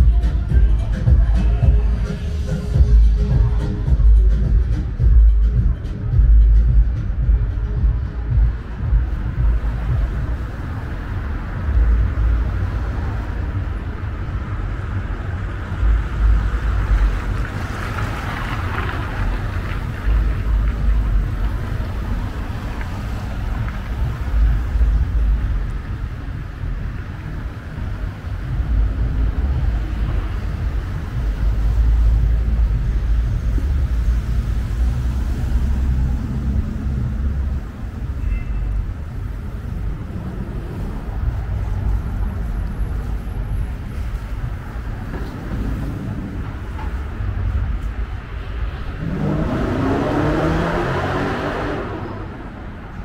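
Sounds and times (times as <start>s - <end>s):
heavy uneven low rumble: 0.0s - 38.2s.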